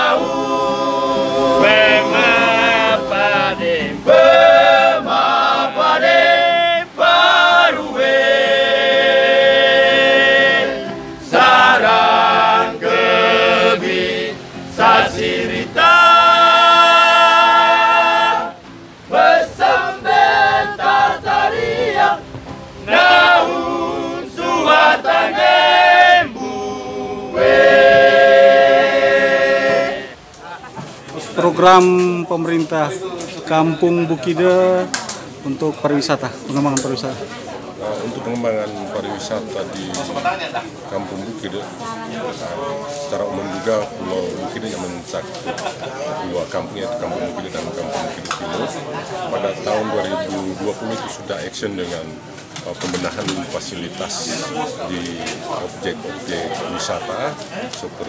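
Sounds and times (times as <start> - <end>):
men singing in chorus: 0.0 - 22.2, 22.9 - 30.2.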